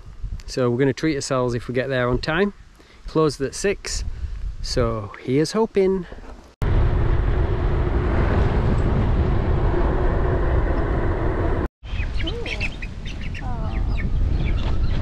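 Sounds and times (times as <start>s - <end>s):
strong wind buffeting microphone: 3.9s - 5.0s, 6.6s - 15.0s.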